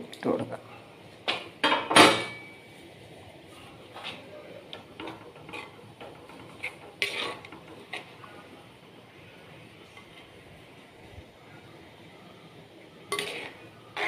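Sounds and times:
spoon clinking and scraping pot: 4.8 - 8.1, 13.1 - 14.0.

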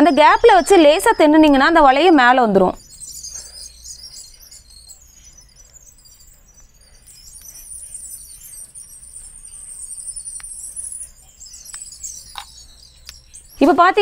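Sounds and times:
birds and insects chirping: 0.0 - 14.0.

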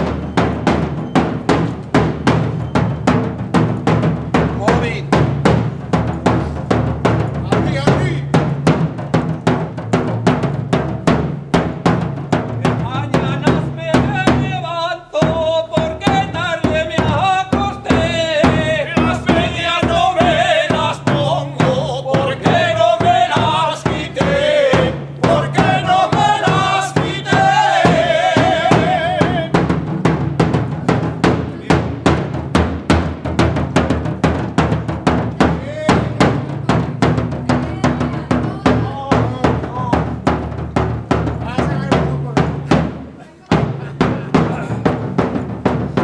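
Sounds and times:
bass drum beating: 0.0 - 46.0
men singing: 12.6 - 29.8, 35.3 - 40.1.

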